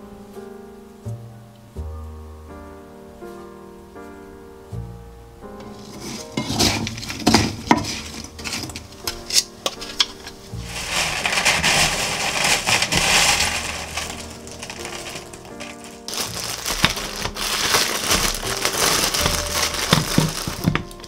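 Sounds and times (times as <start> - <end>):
sugared slices rustling in sieve: 5.6 - 21.0
wooden spatula scraping pan: 5.6 - 21.0.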